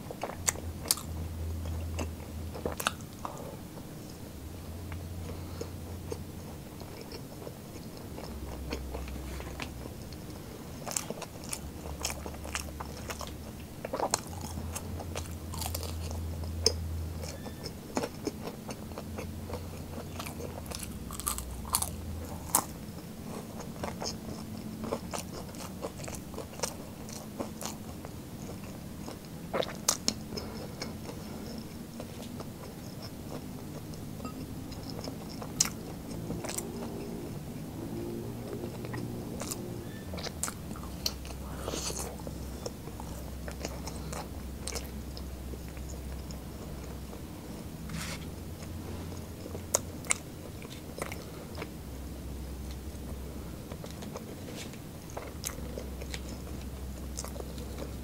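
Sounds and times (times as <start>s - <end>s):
low hum: 0.0s - 29.5s, 30.1s - 58.0s
person eating crunchy snacks: 0.2s - 3.4s, 10.8s - 16.5s, 17.2s - 22.8s.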